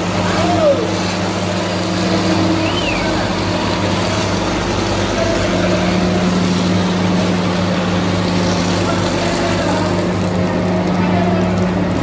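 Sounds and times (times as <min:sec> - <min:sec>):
diesel truck engine running: 0:00.0 - 0:12.0.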